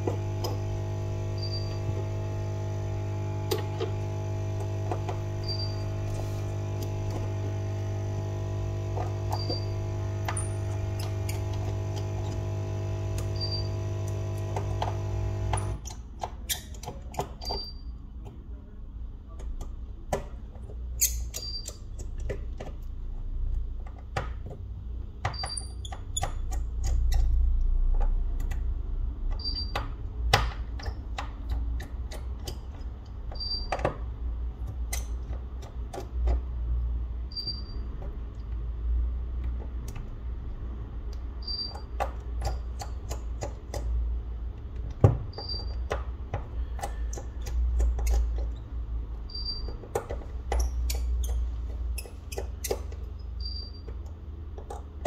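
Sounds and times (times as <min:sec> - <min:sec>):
small tools clicking and tapping: 0:13.2 - 0:18.4, 0:23.5 - 0:36.6, 0:41.1 - 0:55.0.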